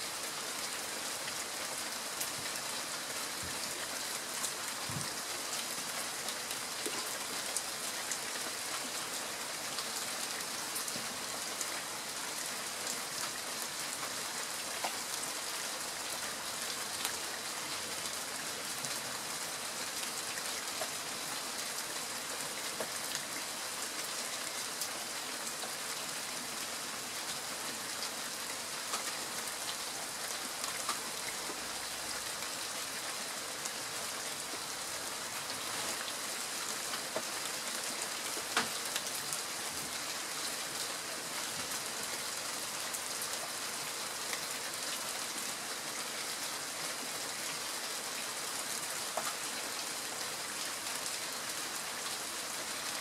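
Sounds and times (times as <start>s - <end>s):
steady rain falling: 0.0s - 53.0s.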